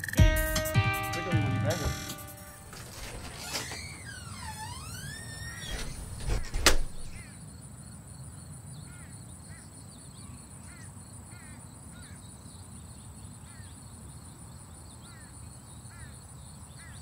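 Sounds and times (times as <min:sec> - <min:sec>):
door creaking: 0:01.6 - 0:07.3
door shutting with latch click: 0:01.8 - 0:07.3.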